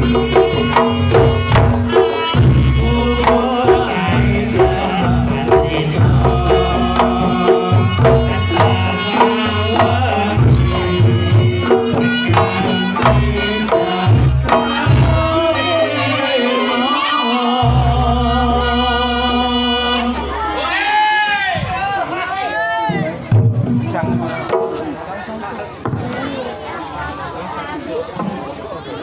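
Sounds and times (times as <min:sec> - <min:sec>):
hand drum fast strokes: 0:00.0 - 0:16.0
struck bronze percussion: 0:00.0 - 0:16.0.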